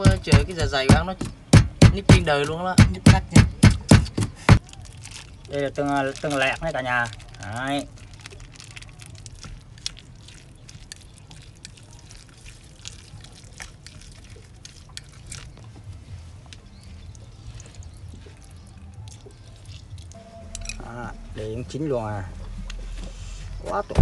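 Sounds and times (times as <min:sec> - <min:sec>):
liquid simmering with bubbling pops: 0:04.6 - 0:20.2
low steady hum: 0:09.2 - 0:24.0.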